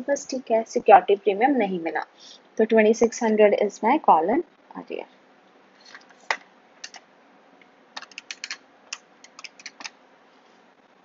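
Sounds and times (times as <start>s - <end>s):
computer keyboard typing: 6.3s - 7.0s, 8.0s - 10.0s.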